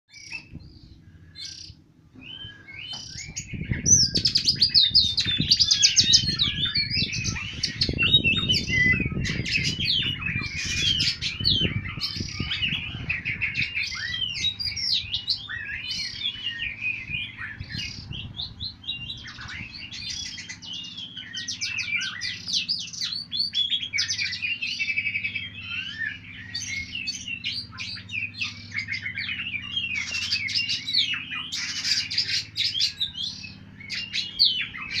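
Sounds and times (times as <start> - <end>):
birds singing whistled phrases: 0.1 - 35.0
low rumble: 3.2 - 23.5.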